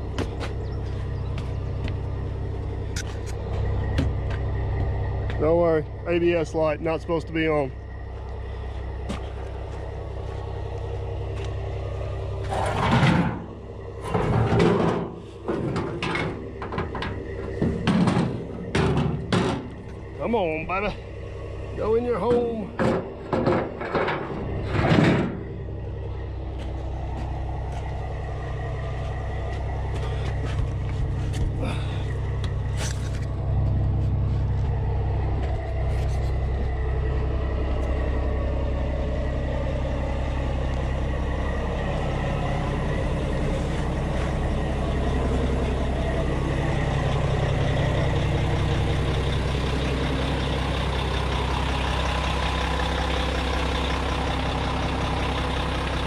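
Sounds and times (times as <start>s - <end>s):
diesel engine idling: 0.0s - 56.0s
loud metallic clank: 12.5s - 19.8s.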